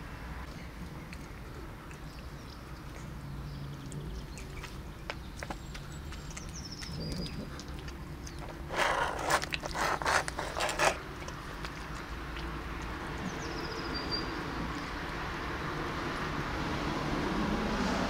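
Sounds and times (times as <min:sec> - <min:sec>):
small bird chirping: 0:01.9 - 0:08.6, 0:13.2 - 0:14.9
plastic tray scraping on asphalt: 0:08.4 - 0:11.0.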